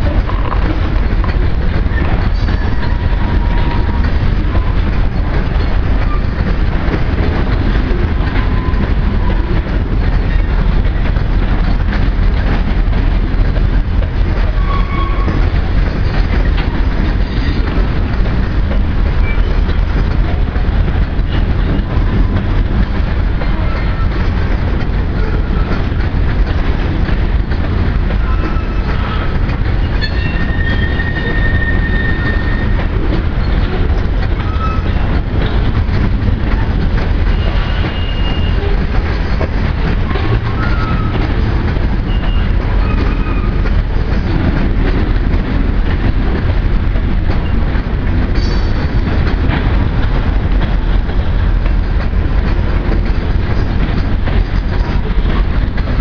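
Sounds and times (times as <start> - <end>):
train wheels rumbling on rails: 0.0 - 56.0
high wheel squeals: 29.8 - 32.8, 37.3 - 38.6.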